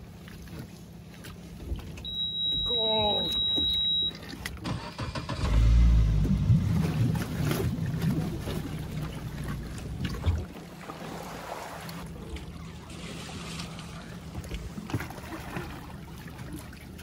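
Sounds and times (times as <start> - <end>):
small boat motor running: 0.0 - 17.0
steady high beep: 2.1 - 4.2.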